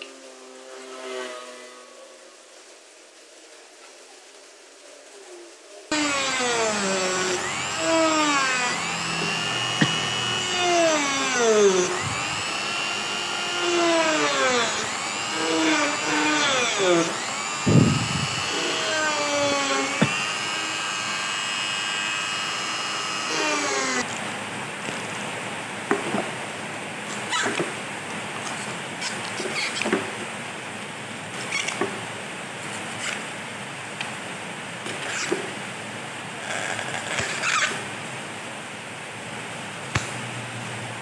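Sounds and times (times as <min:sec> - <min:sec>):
rotary tool cutting board: 0:05.9 - 0:24.1, 0:25.9 - 0:26.4, 0:27.1 - 0:27.8, 0:28.4 - 0:30.4, 0:31.4 - 0:32.1, 0:34.8 - 0:35.6, 0:36.5 - 0:37.9.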